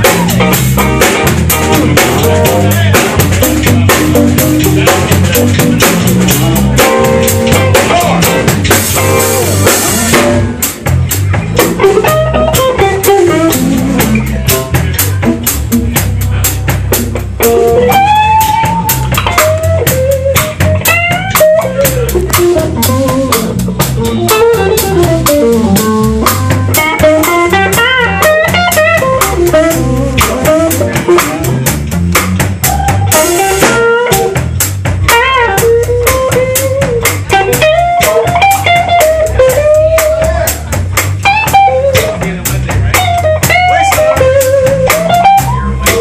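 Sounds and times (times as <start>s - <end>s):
blues band playing: 0.0s - 46.0s
lead guitar solo with string bends: 11.6s - 15.4s, 17.4s - 31.6s, 32.6s - 34.4s, 35.1s - 40.6s, 41.2s - 42.1s, 42.9s - 46.0s.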